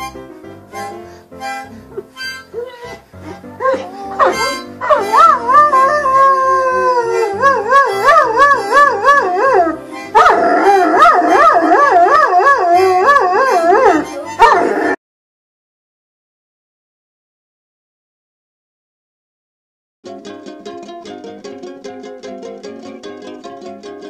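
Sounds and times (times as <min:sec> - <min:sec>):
harmonica playing: 0:00.0 - 0:14.9
dog howling: 0:02.5 - 0:15.0
boy howling: 0:02.6 - 0:15.0.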